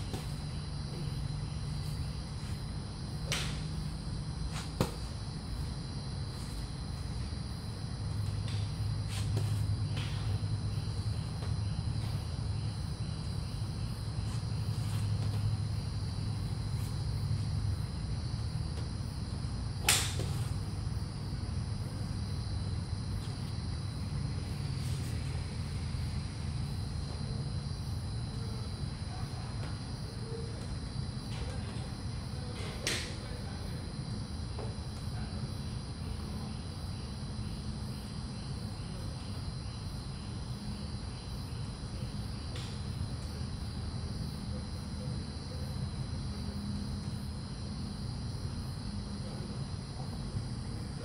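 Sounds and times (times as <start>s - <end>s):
insect trill: 0.0s - 51.0s
golf club striking ball: 19.8s - 20.4s.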